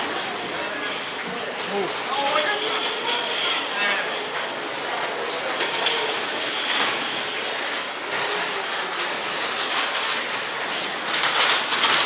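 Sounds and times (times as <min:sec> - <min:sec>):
crowd noise: 0:00.0 - 0:11.9.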